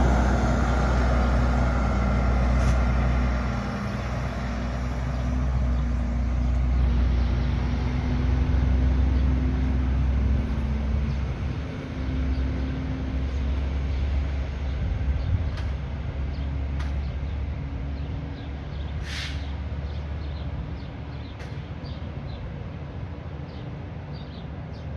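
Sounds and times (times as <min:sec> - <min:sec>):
truck engine rumbling: 0:00.0 - 0:24.9
air brake hiss: 0:19.0 - 0:19.6.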